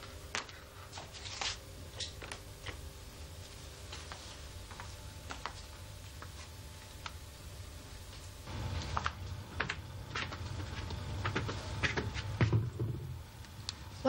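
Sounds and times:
low steady hum: 0.0 - 14.0
light footsteps: 2.0 - 12.8.

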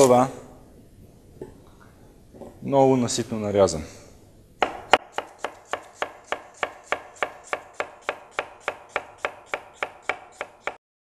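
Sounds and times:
knife slicing onion: 4.6 - 10.8.

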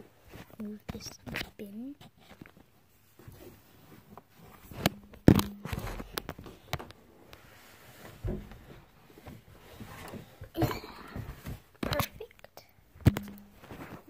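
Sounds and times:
knocks and thuds: 8.2 - 8.8, 13.0 - 13.9.

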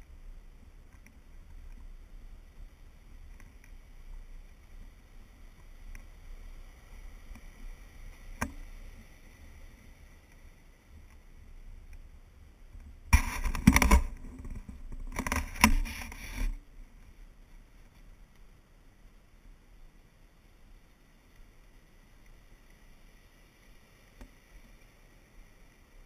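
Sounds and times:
faint low rumble: 0.0 - 26.0
camera handling rubbing and scraping: 13.1 - 16.6.

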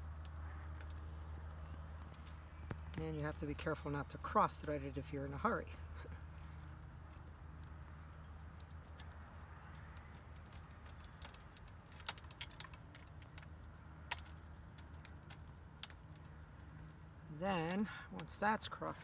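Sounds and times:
low steady hum: 0.0 - 19.0
small metallic clicks: 7.1 - 18.4.

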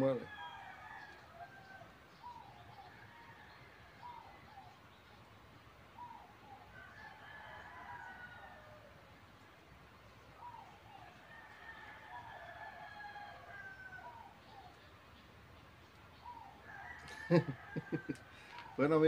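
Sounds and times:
distant bird calls: 0.0 - 19.0.

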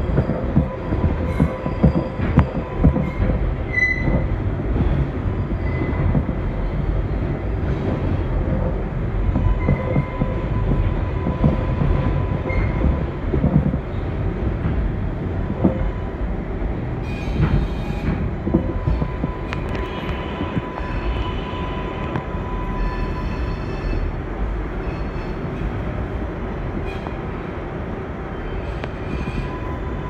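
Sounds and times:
track knocks: 0.0 - 21.2
train wheels rumbling on rails: 0.0 - 30.0.

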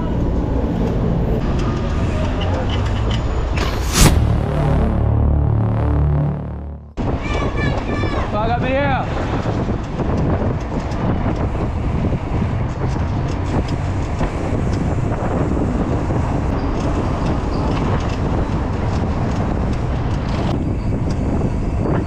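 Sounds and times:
road and traffic noise: 0.0 - 22.0
wind rumble on microphone: 7.0 - 22.0.

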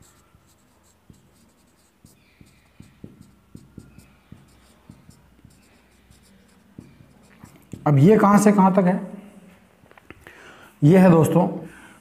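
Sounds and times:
marker squeaking: 0.0 - 8.2
marker pen strokes on whiteboard: 0.0 - 8.5.

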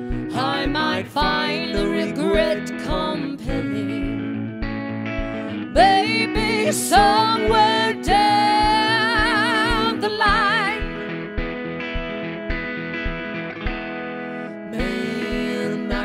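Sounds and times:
electric guitar chords: 0.0 - 16.0
low kick drum beat: 0.1 - 14.0
woman singing with vibrato: 0.3 - 4.2, 5.4 - 11.0, 14.7 - 16.0.

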